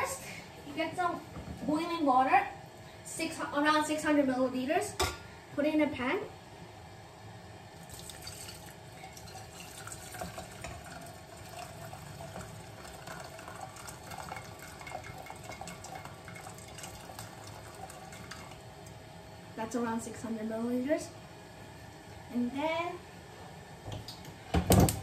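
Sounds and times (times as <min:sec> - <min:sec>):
water pouring into metal pan: 0:07.9 - 0:18.6.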